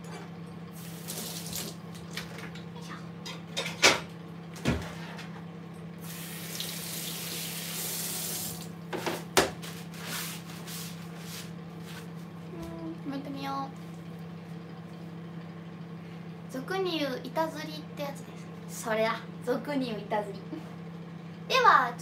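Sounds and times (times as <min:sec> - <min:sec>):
microwave oven humming: 0:00.0 - 0:22.0
kitchen tap running: 0:00.8 - 0:02.3, 0:06.0 - 0:08.8.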